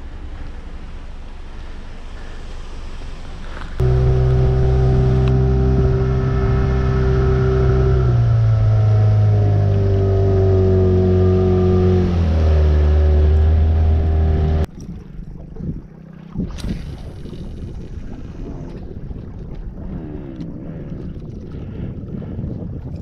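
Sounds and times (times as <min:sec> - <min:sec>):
outboard motor running: 0:03.4 - 0:15.2.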